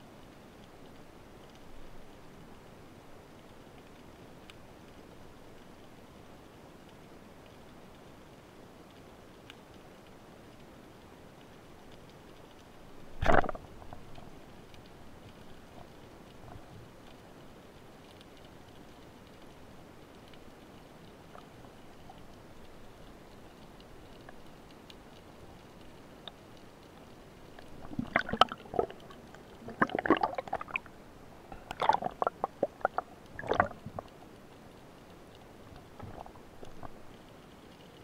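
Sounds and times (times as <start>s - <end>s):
loud bubble gurgling bursts: 27.8s - 30.9s, 31.7s - 34.1s.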